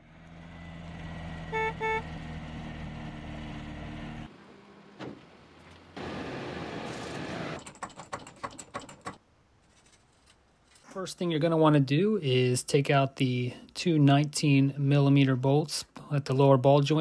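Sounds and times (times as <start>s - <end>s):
short horn beeps: 1.4s - 2.1s
thump: 5.0s - 5.3s.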